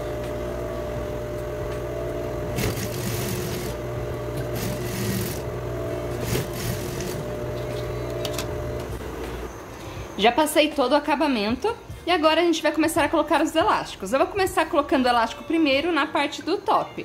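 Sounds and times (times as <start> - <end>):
overlock machine running: 0.0 - 9.1.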